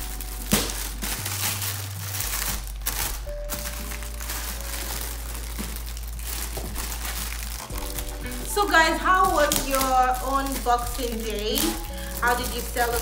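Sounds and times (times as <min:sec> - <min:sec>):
background music: 0:00.0 - 0:13.0
wrapping paper crinkling: 0:00.0 - 0:13.0.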